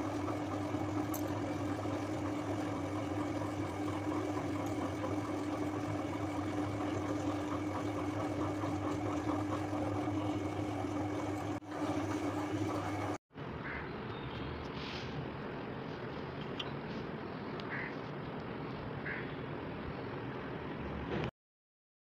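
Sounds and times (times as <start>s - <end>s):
machine-like hum: 0.0s - 14.6s.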